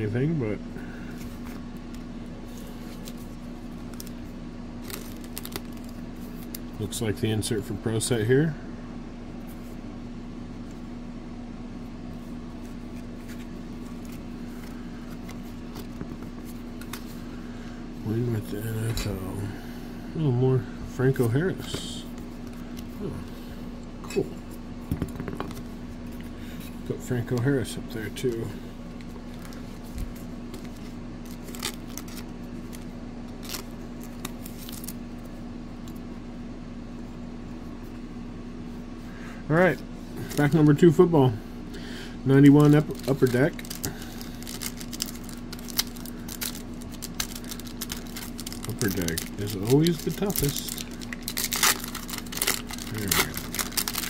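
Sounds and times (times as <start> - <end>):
low electrical hum: 0.0 - 54.0
trading cards rustling and clicking: 1.1 - 4.2, 4.8 - 6.7, 26.6 - 35.0, 42.4 - 54.0
plastic sleeve crinkling: 1.1 - 6.7, 29.1 - 35.0, 42.4 - 54.0.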